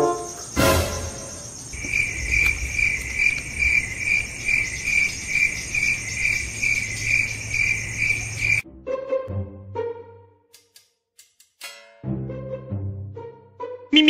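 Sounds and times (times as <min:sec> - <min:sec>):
cricket chirping: 0:00.0 - 0:08.6.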